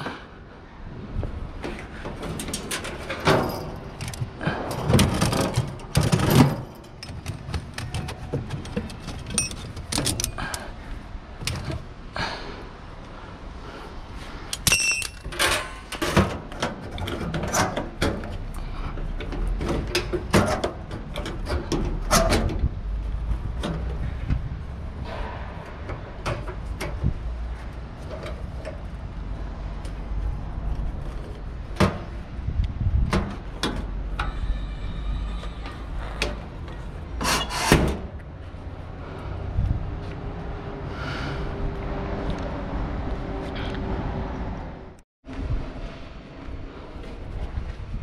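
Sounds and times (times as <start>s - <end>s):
metal buckles clanking and rattling: 1.6s - 11.9s, 14.5s - 29.0s.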